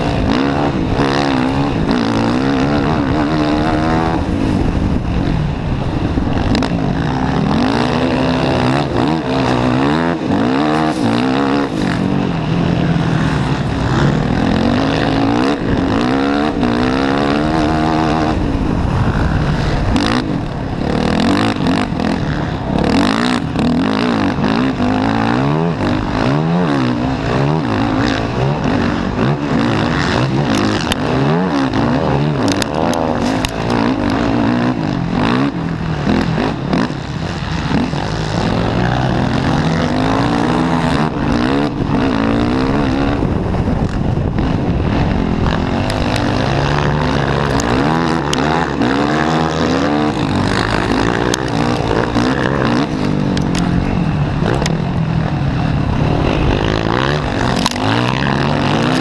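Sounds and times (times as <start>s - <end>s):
wind and spray rush: 0.0s - 23.8s, 28.2s - 59.0s
quad engine revving: 0.0s - 59.0s.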